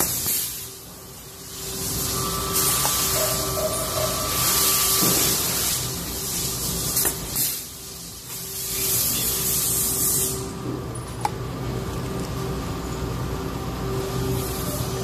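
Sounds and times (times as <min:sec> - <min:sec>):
rivet gun air hiss: 0:00.0 - 0:00.8, 0:04.4 - 0:10.5.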